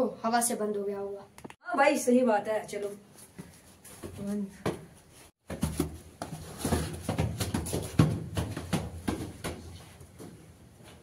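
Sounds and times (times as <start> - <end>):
footsteps on concrete stairs: 3.2 - 11.0.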